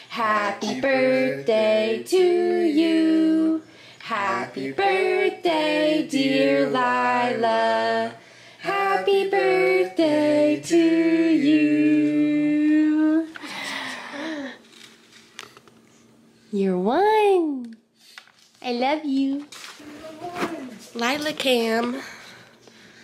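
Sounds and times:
woman singing: 0.0 - 13.4.

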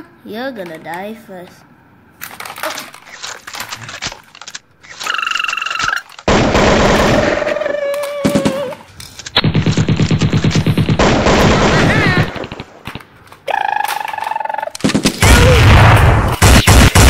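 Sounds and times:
toy gun buzzing tone: 4.9 - 6.2.

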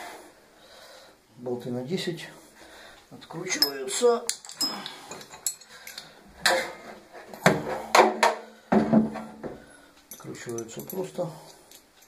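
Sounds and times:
metallic clanks of hand tool: 10.1 - 12.0.

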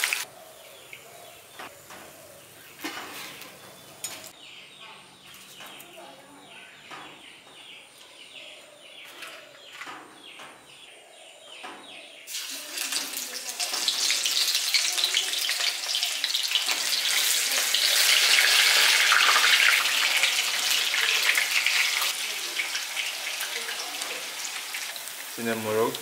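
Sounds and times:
batter sizzling in hot oil: 0.0 - 0.3, 12.3 - 26.0.

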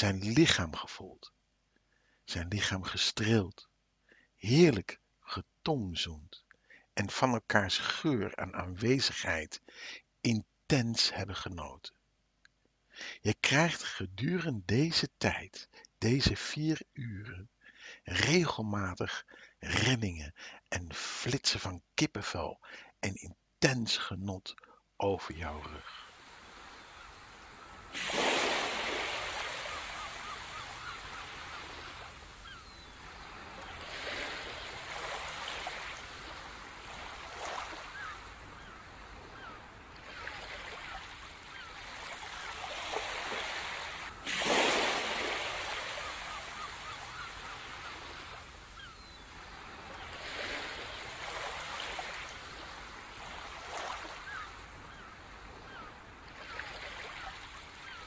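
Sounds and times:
sea waves breaking on beach: 25.4 - 58.0.

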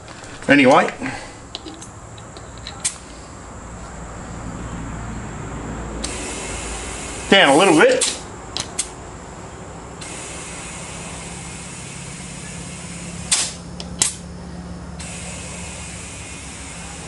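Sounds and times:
air hissing into tyre: 5.9 - 9.0, 9.9 - 14.3, 15.0 - 17.0
sharp blasts of escaping air: 6.0 - 9.0, 10.0 - 14.2, 15.0 - 17.0.

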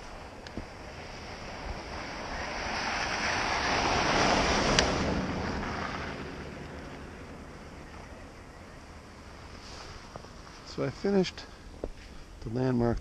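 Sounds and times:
vehicle passing on slushy road: 0.1 - 7.8.

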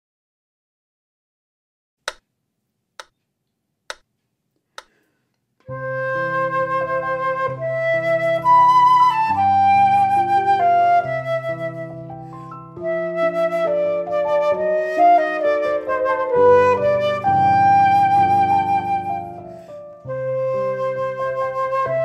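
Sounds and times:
clicks: 3.0 - 3.2, 3.9 - 5.4
flute melody: 5.7 - 22.0
piano accompaniment: 5.7 - 22.0.

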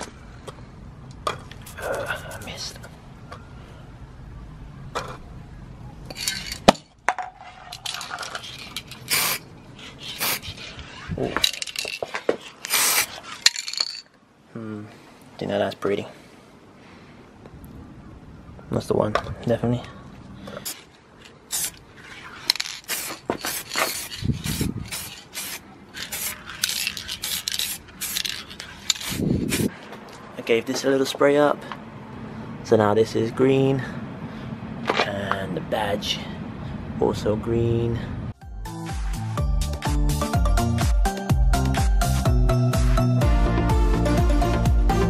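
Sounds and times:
metal tins clinking on tarmac: 6.1 - 9.3, 11.4 - 12.3, 13.4 - 14.1
spray paint can hissing bursts: 7.9 - 12.0, 12.6 - 13.8, 21.5 - 29.7
aerosol spray hiss: 9.1 - 9.4, 10.1 - 10.5, 12.7 - 13.1, 21.5 - 21.8, 22.9 - 26.4, 27.2 - 28.3.

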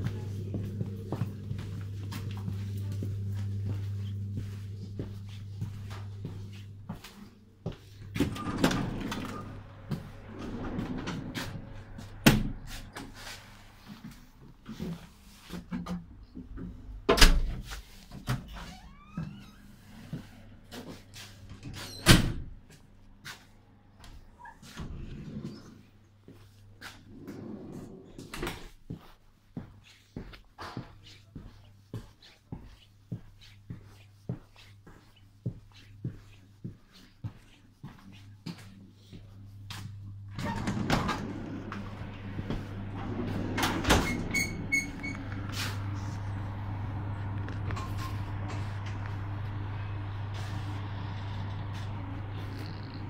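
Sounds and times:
steady low hum: 0.0 - 18.0, 33.1 - 53.0
train door rattling: 40.4 - 46.0.

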